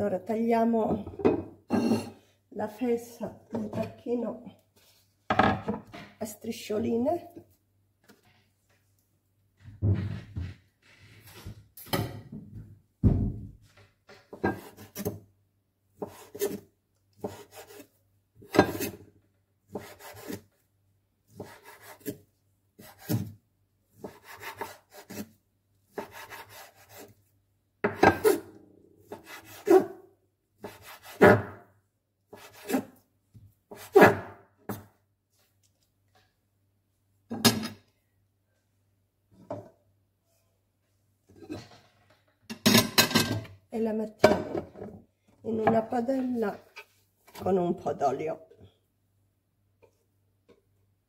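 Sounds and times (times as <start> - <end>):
knife cutting meat on wooden board: 17.2 - 17.9, 19.7 - 20.5, 21.3 - 22.2, 24.0 - 25.3, 25.9 - 27.2.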